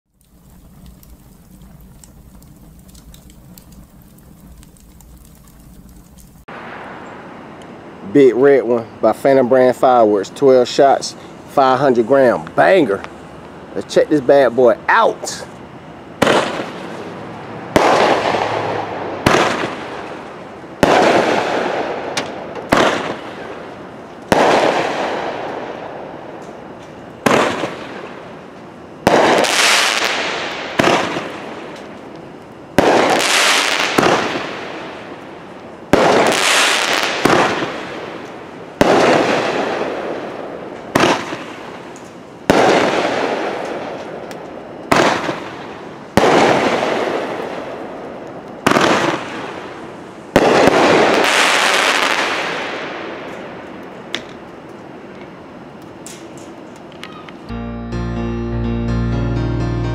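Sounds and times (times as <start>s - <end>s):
firework cake bangs: 16.2s - 16.8s, 17.8s - 18.6s, 19.2s - 20.0s, 20.8s - 23.6s, 24.3s - 25.5s, 27.2s - 28.0s, 29.1s - 31.4s, 32.8s - 34.8s, 35.9s - 38.2s, 38.8s - 40.1s, 40.9s - 41.6s, 42.5s - 43.8s, 44.9s - 45.6s, 46.2s - 47.4s, 48.6s - 49.6s, 50.4s - 52.9s.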